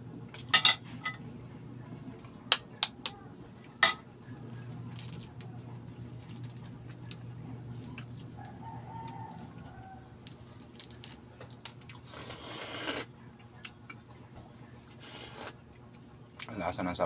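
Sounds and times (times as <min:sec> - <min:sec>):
faint rooster crow: 0:08.3 - 0:10.3
slurping broth: 0:12.1 - 0:13.1.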